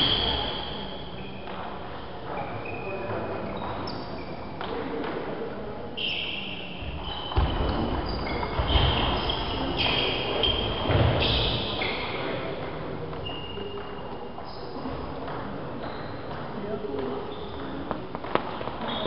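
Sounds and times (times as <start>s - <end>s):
shoe squeaks: 0.0s - 1.5s, 2.3s - 4.6s, 6.0s - 12.6s, 13.2s - 16.3s, 17.1s - 18.0s, 18.8s - 19.0s.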